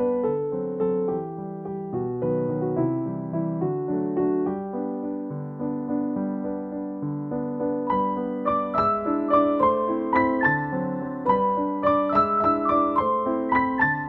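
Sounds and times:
gentle piano music: 0.0s - 14.0s.

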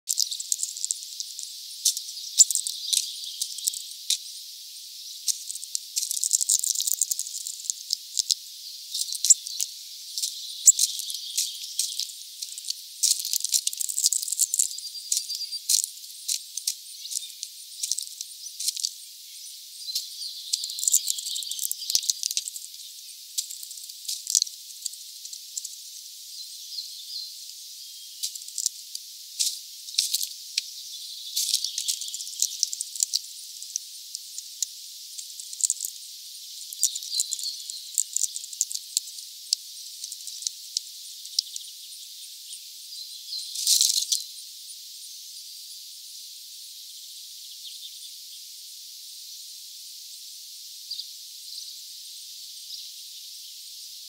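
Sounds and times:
bird pecking and cracking seeds: 0.1s - 3.8s, 5.3s - 8.4s, 9.0s - 19.0s, 19.9s - 22.6s, 23.4s - 25.7s, 28.2s - 30.7s, 31.4s - 36.0s, 36.7s - 41.6s, 43.6s - 44.2s.

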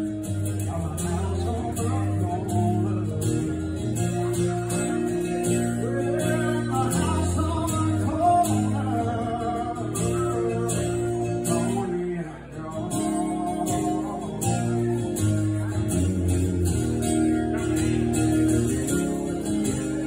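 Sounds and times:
acoustic guitar strumming: 0.0s - 20.0s
man singing: 0.0s - 20.0s.

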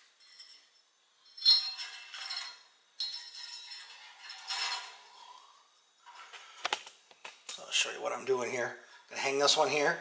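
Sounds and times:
small metal parts clinking: 0.1s - 5.0s.

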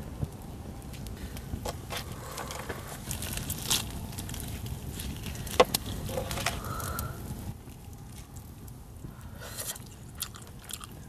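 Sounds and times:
campfire crackling: 0.0s - 11.0s
handling clatter on grill: 5.5s - 6.6s.

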